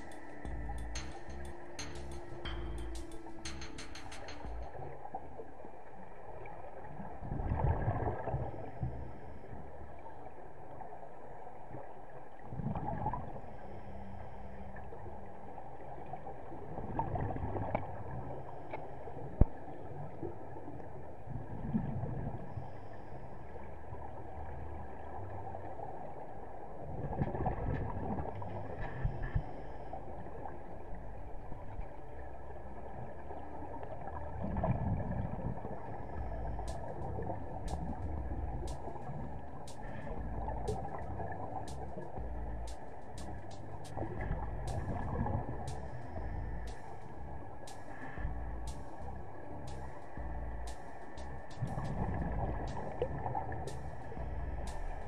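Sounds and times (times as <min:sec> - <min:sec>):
steady low hum: 0:00.0 - 0:05.3, 0:27.8 - 0:55.0
gurgling regulator bubbles underwater: 0:00.0 - 0:10.8, 0:11.8 - 0:55.0.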